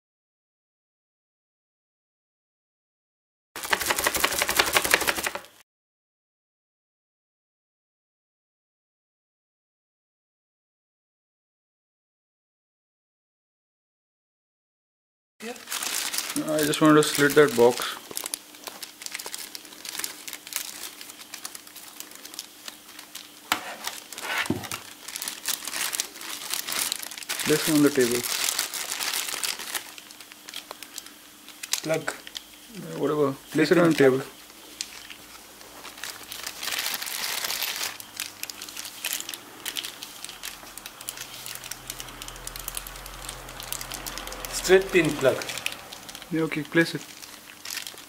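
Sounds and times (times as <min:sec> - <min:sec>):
plastic bag crinkling: 0:03.6 - 0:05.6, 0:15.4 - 0:48.0.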